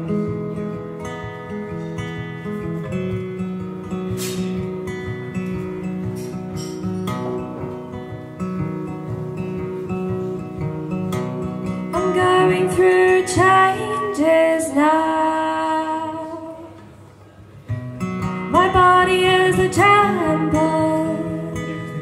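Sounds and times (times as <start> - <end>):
acoustic guitar: 0.0 - 22.0
woman singing: 11.9 - 16.8, 18.4 - 22.0.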